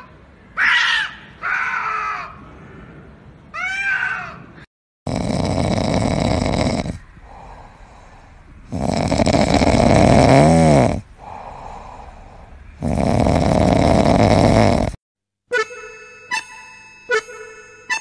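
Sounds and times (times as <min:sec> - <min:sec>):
cat snoring: 0:05.1 - 0:07.8, 0:08.6 - 0:12.1, 0:12.8 - 0:15.0.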